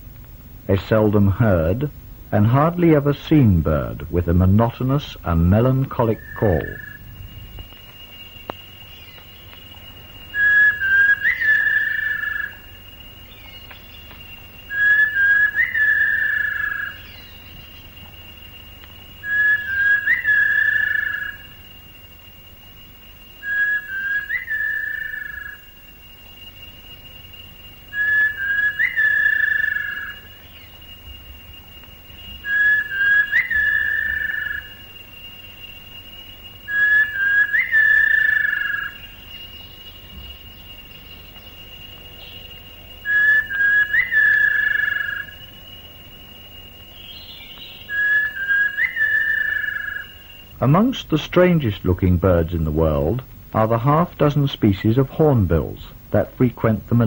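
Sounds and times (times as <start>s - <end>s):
steady high tone: 0.7s - 57.0s
bird whistled call: 5.6s - 50.7s.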